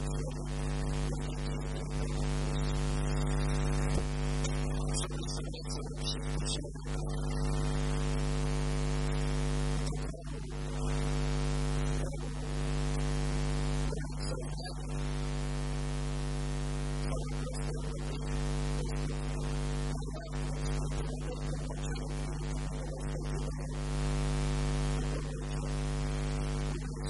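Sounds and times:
electrical mains hum and hiss: 0.0s - 27.0s
faint man's voice: 3.9s - 7.9s, 13.8s - 15.0s.

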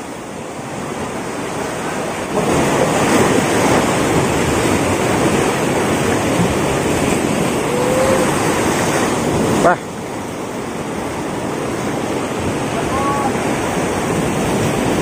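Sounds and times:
surf breaking over rocks: 0.0s - 15.0s.

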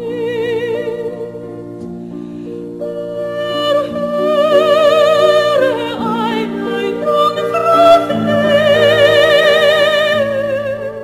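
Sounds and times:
operatic singing: 3.1s - 11.0s.

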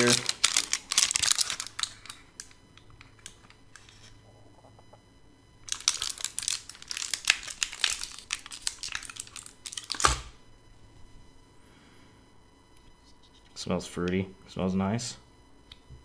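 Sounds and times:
plastic crinkling: 0.0s - 4.1s, 5.7s - 10.3s.

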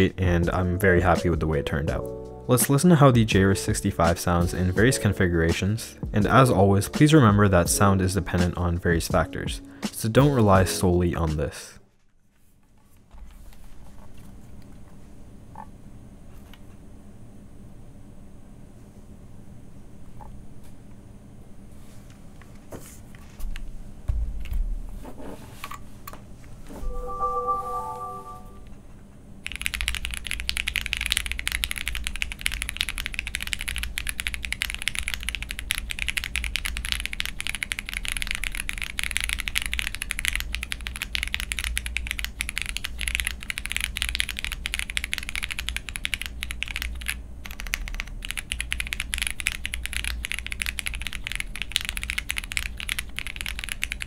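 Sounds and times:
brief chord-like tone: 26.8s - 28.7s
mechanical keyboard typing: 29.4s - 54.0s.

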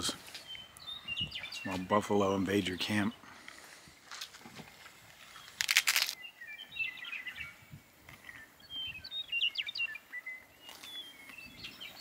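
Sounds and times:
small birds chirping: 0.0s - 12.0s
crunchy bite: 5.5s - 6.2s.

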